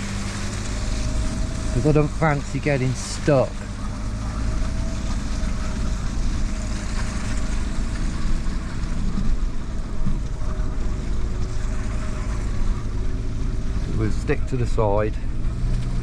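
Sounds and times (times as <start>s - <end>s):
car engine and tyres rumbling: 0.0s - 16.0s
car knocking over ruts: 0.0s - 16.0s.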